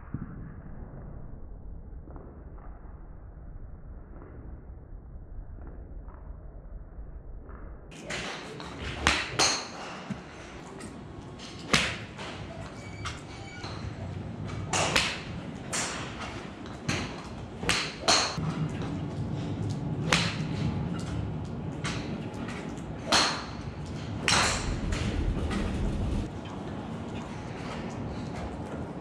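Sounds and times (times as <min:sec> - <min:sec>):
golf clubs striking balls: 0:07.9 - 0:12.5, 0:13.7 - 0:19.0, 0:20.0 - 0:25.2.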